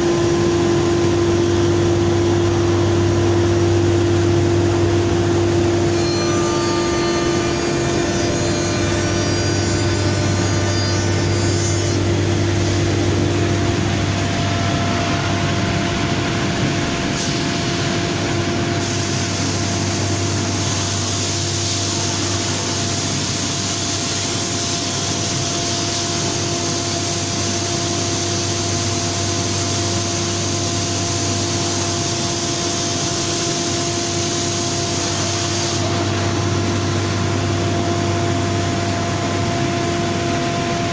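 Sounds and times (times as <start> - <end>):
machine humming: 0.0 - 40.9
spindle whine milling wood: 0.0 - 40.9.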